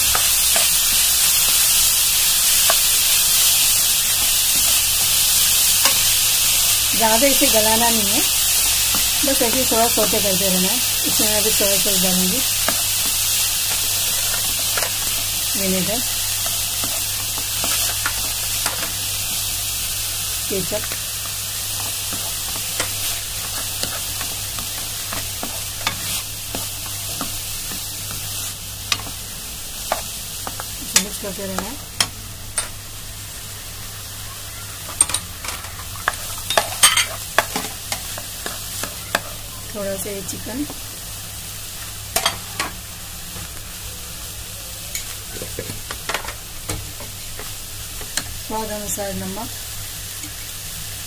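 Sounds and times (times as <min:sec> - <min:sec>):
vegetables sizzling in a pan: 0:00.0 - 0:51.0
spoon scraping a pan: 0:16.0 - 0:19.4, 0:20.8 - 0:29.2, 0:34.9 - 0:39.4
spatula scraping a pan: 0:21.8 - 0:28.3.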